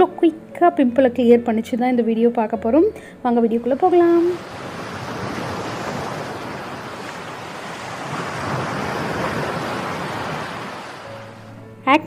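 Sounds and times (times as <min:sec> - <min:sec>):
ocean surf breaking: 0:03.7 - 0:11.5.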